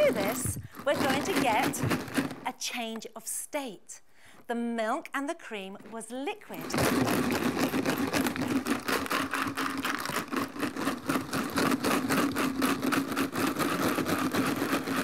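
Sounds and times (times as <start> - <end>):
ice rattling in shaken plastic jar: 0.0 - 2.4, 6.5 - 15.0.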